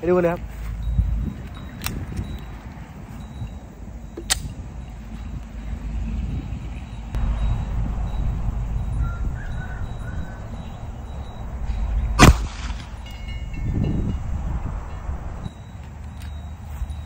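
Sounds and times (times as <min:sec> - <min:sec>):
low rumble: 0:07.1 - 0:15.5
pistol shot: 0:12.2 - 0:12.9.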